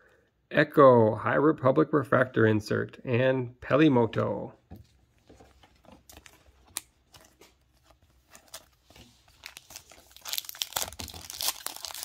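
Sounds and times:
foil wrapper tearing and crinkling: 8.2s - 12.0s.

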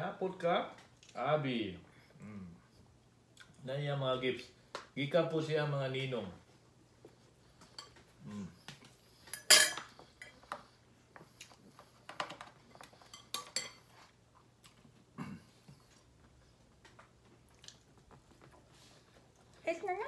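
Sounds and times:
cutlery clinking on plates: 9.2s - 10.6s, 12.2s - 14.1s.

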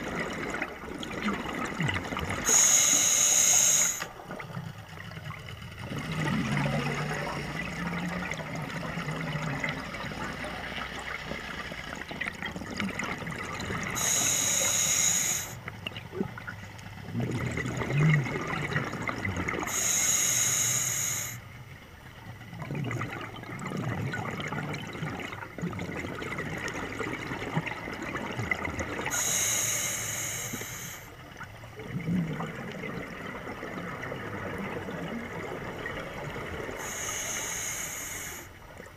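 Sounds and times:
regulator inhalation hiss: 2.4s - 4.1s, 14.0s - 15.6s, 19.7s - 21.4s, 29.1s - 31.2s, 36.8s - 38.6s
bubbling exhales: 17.0s - 20.2s, 31.8s - 38.5s.

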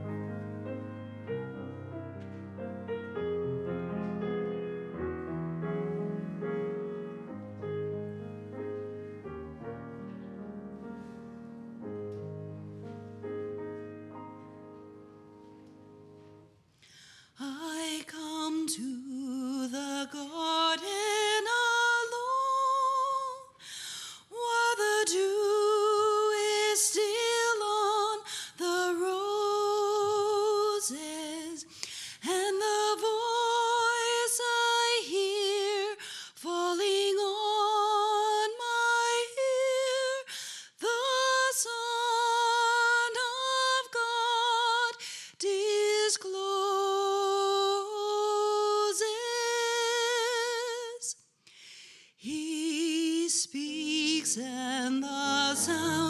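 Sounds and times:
woman singing with vibrato: 17.4s - 23.6s, 24.2s - 51.1s, 52.2s - 56.0s
low instrumental chords: 55.3s - 56.0s.

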